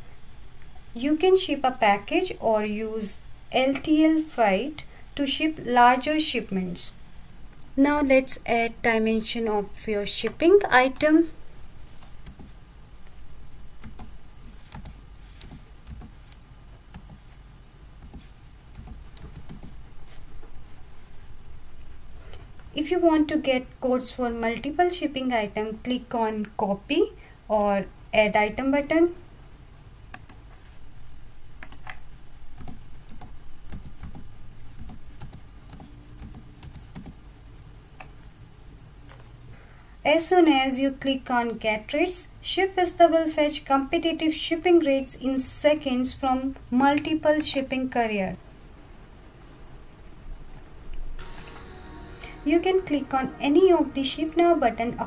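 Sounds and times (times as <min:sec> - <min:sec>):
computer keyboard typing: 0:12.0 - 0:12.5, 0:13.8 - 0:16.2, 0:18.0 - 0:19.8, 0:31.6 - 0:32.0, 0:32.6 - 0:37.2.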